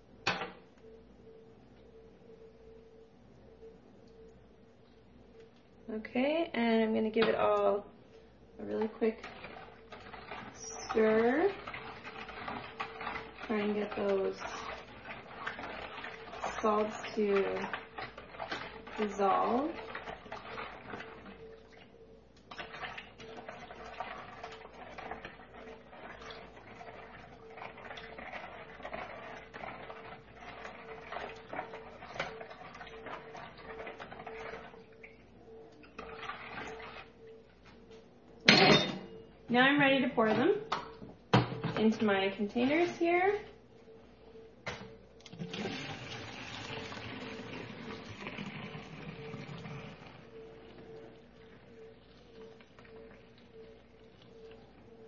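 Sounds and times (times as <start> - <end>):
liquid pouring through funnel: 9.0 - 21.9, 22.5 - 35.1, 35.9 - 37.2, 45.2 - 50.4.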